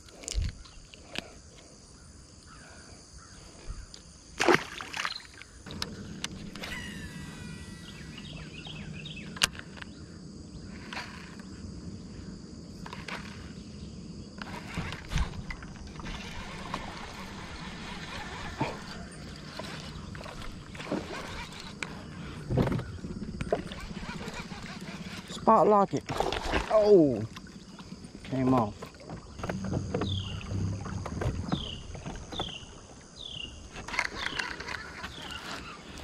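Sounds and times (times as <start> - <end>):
bird chirping: 5.0 - 10.7, 29.2 - 36.0
electric motor humming: 5.7 - 9.9, 14.3 - 25.6.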